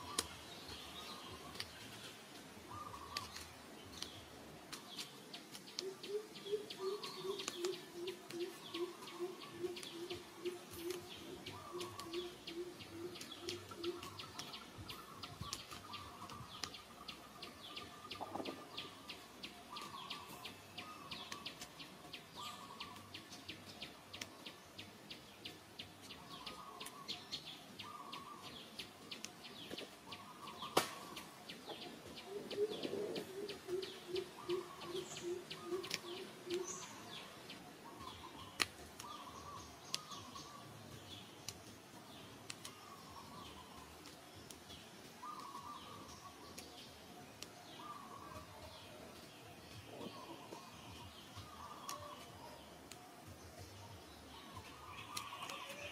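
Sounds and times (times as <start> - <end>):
low hooting bird call: 5.8 - 14.3, 32.2 - 37.1.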